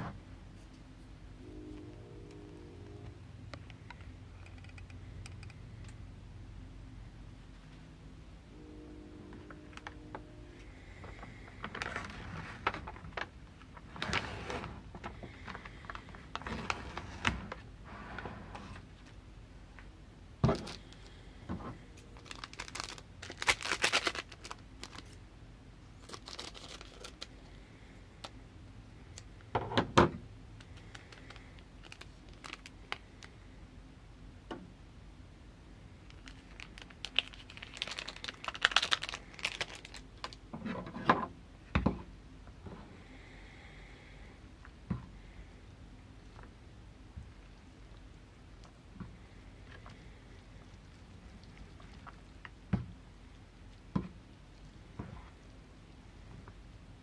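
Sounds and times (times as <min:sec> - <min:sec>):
packaging crinkling: 0:22.1 - 0:25.2, 0:26.0 - 0:27.4, 0:30.6 - 0:33.3, 0:36.0 - 0:40.4
foil packet tearing: 0:22.2 - 0:25.2, 0:26.0 - 0:27.3, 0:30.8 - 0:33.3, 0:36.1 - 0:40.4.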